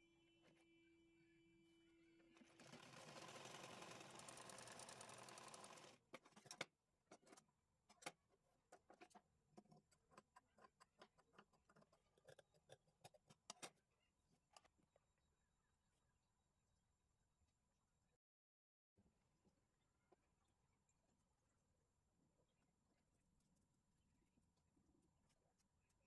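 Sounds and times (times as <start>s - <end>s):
sewing machine running: 2.4s - 6.0s.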